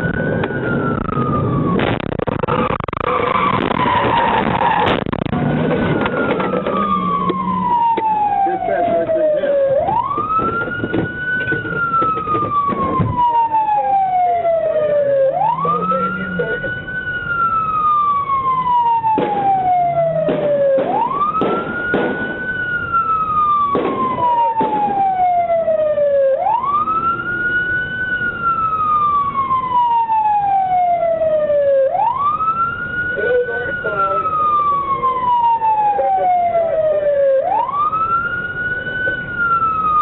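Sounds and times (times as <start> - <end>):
police siren wailing: 0.0 - 40.0.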